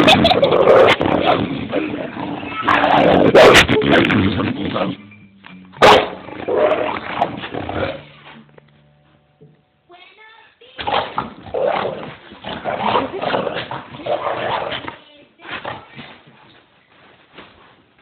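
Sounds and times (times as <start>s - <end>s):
dog growling and barking: 0.0s - 5.1s, 5.8s - 8.4s, 10.8s - 15.0s.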